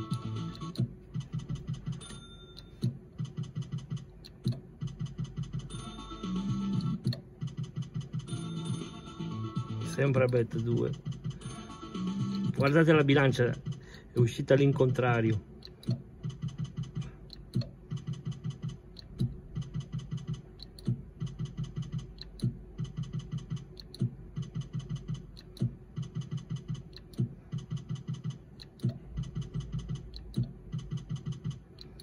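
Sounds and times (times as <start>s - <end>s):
fast electronic ticks: 0.0s - 8.9s, 9.8s - 11.4s, 12.2s - 32.0s
slot machine spin click: 8.0s - 13.3s.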